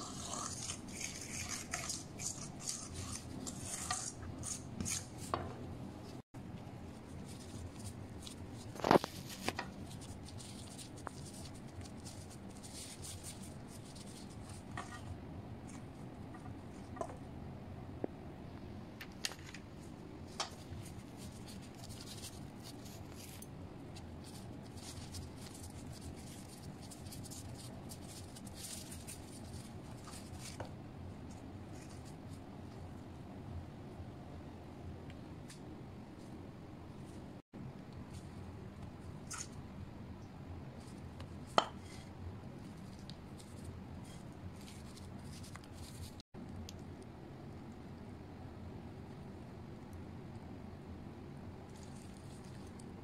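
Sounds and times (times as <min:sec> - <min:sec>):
metal spoon scraping steel bowl: 0:00.0 - 0:05.1.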